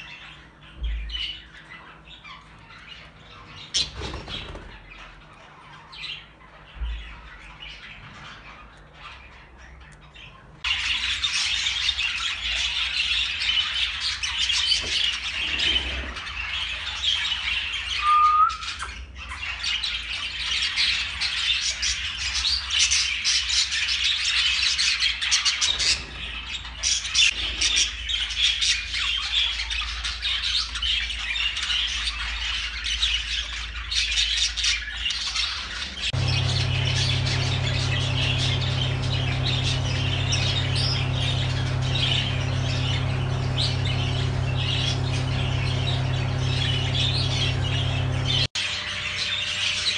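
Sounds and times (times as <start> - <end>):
budgerigars chattering: 0.0 - 49.9
steady low hum: 35.7 - 49.9.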